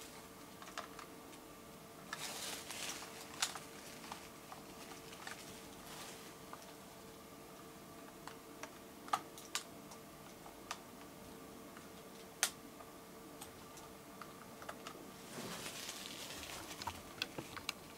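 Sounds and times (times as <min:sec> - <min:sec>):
faint steady hum: 0:00.0 - 0:17.9
soft rustle: 0:02.1 - 0:06.8, 0:15.2 - 0:17.9.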